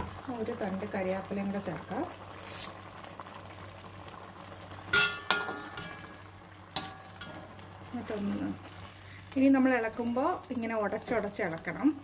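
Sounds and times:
metal ladle clinking on pot: 4.9s - 6.0s.

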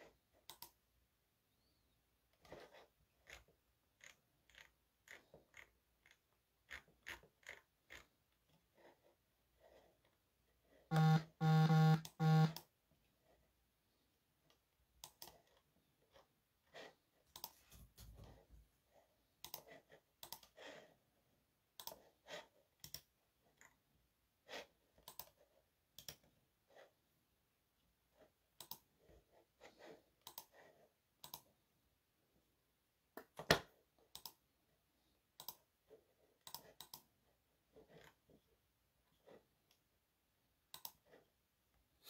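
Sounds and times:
faint clicks and taps: 17.3s - 18.7s.

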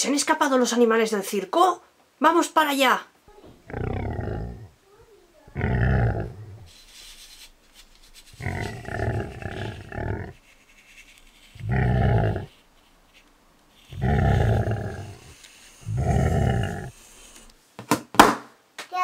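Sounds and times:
big cat roaring: 3.6s - 4.8s, 5.5s - 6.7s, 8.4s - 10.4s, 11.6s - 12.5s, 13.9s - 17.0s.

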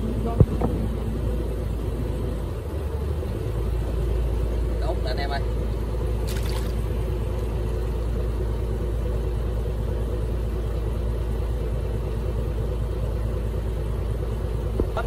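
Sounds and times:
boat engine running at low revs: 0.0s - 15.0s.

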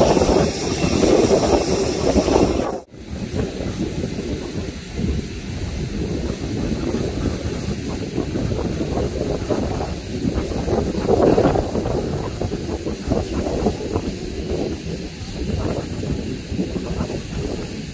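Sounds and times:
jet engines rumble and hiss: 0.0s - 17.9s.

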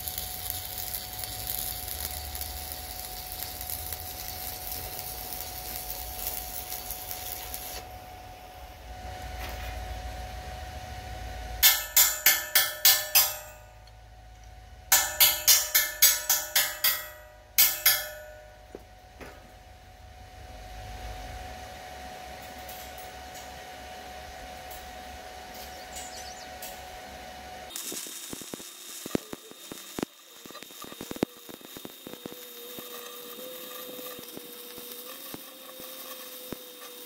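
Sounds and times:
welding arc crackling and hissing: 0.0s - 19.8s, 20.8s - 37.0s
ringing metal strikes on steel: 11.6s - 13.8s, 14.9s - 19.4s.

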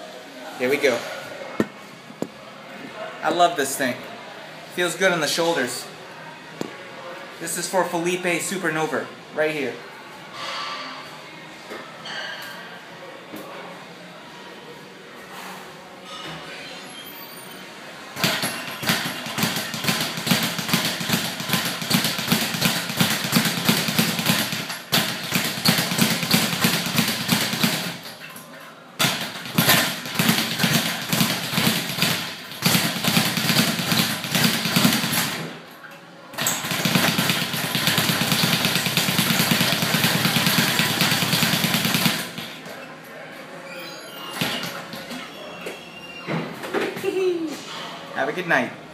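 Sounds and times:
speed bag drumming: 18.2s - 28.1s, 29.0s - 35.5s, 36.4s - 42.5s.

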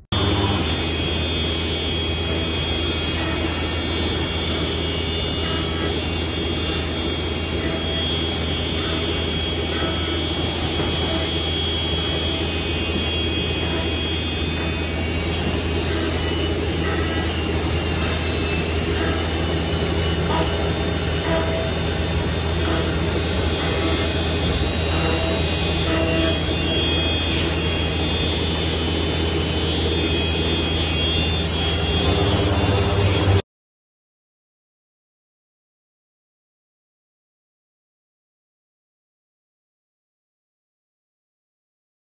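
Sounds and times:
high spindle whine: 0.0s - 33.4s
low machine hum: 0.0s - 33.4s.

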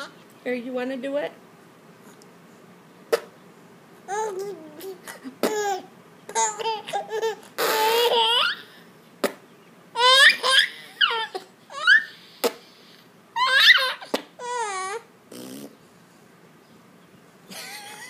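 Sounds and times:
sharp pops: 3.1s - 3.4s, 9.2s - 9.4s
baby laughing hysterically: 5.0s - 8.8s, 10.0s - 12.2s, 13.4s - 14.8s.

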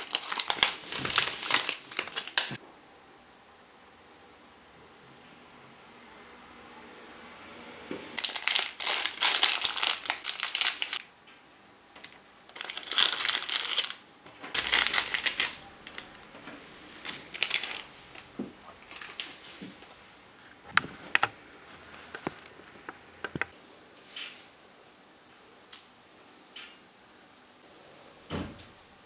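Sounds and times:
plastic bag crinkling: 0.0s - 2.6s, 8.2s - 11.1s, 12.0s - 19.7s, 20.4s - 23.5s.

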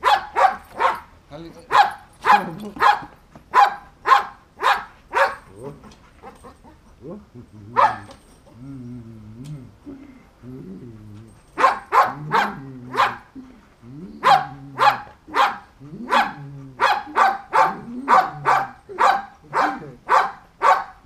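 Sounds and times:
dog barking: 0.0s - 1.1s, 1.7s - 5.5s, 7.8s - 8.2s, 11.6s - 13.3s, 14.2s - 21.0s.

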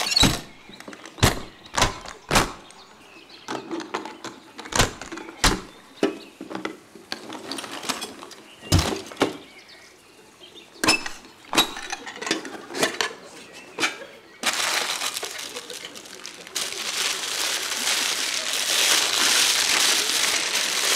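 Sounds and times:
metal latches snapping: 0.0s - 2.8s, 10.8s - 12.5s
rustling noise: 14.4s - 20.9s.

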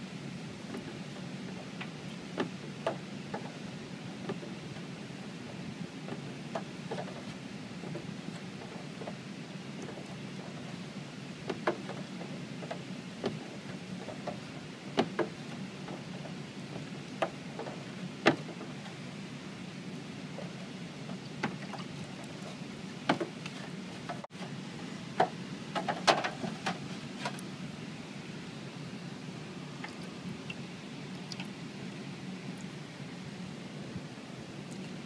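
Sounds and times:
low background noise: 0.0s - 35.0s
small splashes and drips: 21.1s - 22.6s, 29.8s - 31.6s.

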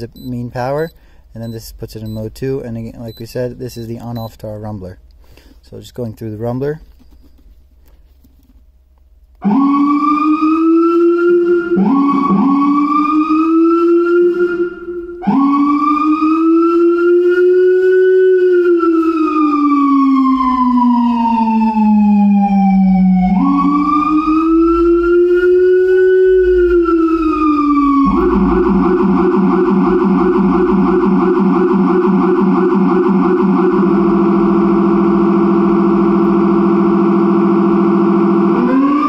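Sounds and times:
electronic police siren wailing: 9.4s - 39.0s
low siren tone: 9.4s - 39.0s.

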